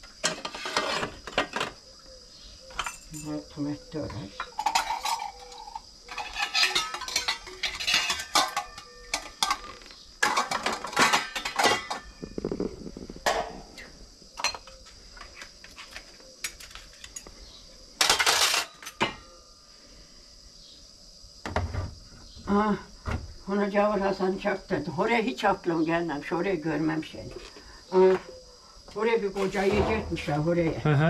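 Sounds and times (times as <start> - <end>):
glasses and dishes clinking: 2.8 - 3.3, 4.4 - 12.3, 14.4 - 14.8, 18.0 - 19.3.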